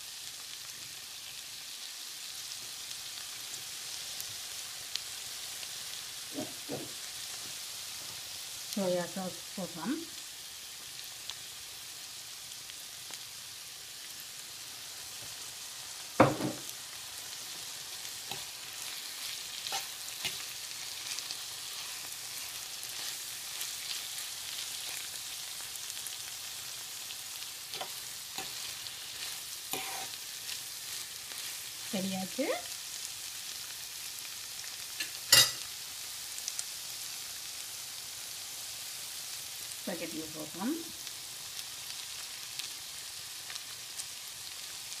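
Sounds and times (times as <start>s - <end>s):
food sizzling in frying pan: 0.0s - 45.0s
fork scraping and clicking on pan: 19.7s - 20.4s, 27.7s - 30.2s.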